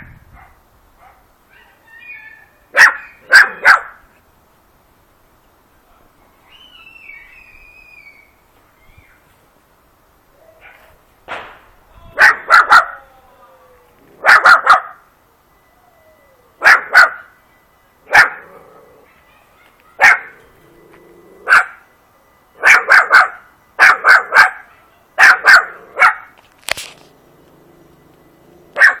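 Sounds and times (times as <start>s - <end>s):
puppy barking in sharp yaps: 12.2s - 13.0s, 22.6s - 26.4s, 28.8s - 29.0s.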